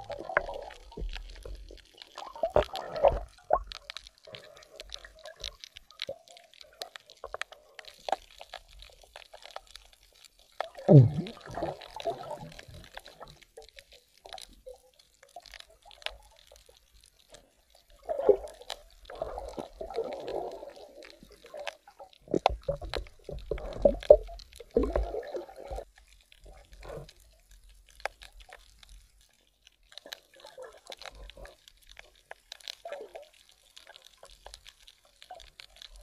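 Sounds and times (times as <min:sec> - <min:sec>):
muffled underwater bubbling: 0:10.6 - 0:13.2, 0:18.0 - 0:25.9.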